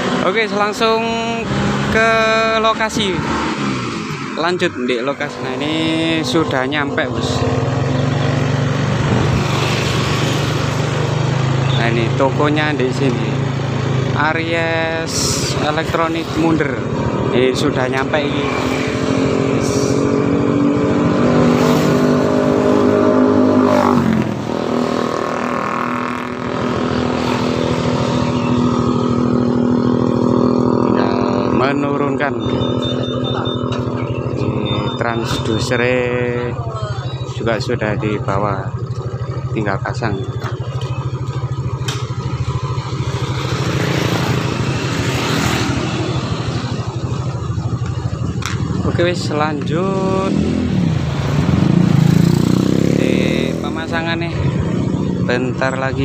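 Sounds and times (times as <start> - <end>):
motorcycle engine running: 0.0 - 56.0
vehicle passing: 1.3 - 31.7, 42.0 - 47.8, 49.9 - 56.0
vehicle engine idling: 32.2 - 43.6.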